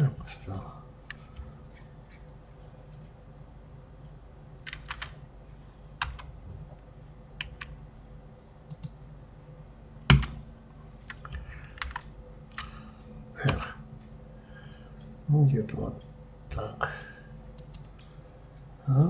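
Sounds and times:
faint steady hum: 0:00.0 - 0:19.0
computer keyboard keys pressed: 0:04.6 - 0:05.2, 0:06.0 - 0:06.3, 0:10.1 - 0:10.4, 0:11.1 - 0:12.8.

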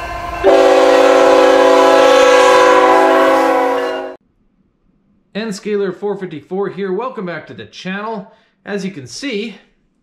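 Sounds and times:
locomotive air horn: 0:00.0 - 0:04.2.

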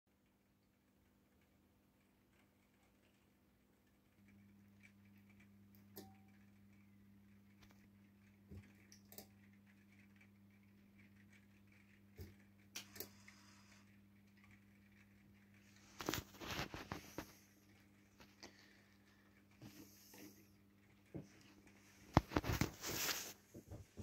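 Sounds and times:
soft clicks and taps: 0:21.0 - 0:24.0.

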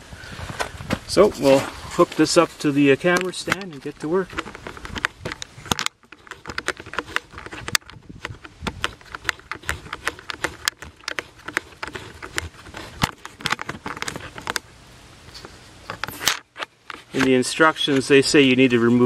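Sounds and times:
small objects clicking and tapping: 0:03.0 - 0:14.6.

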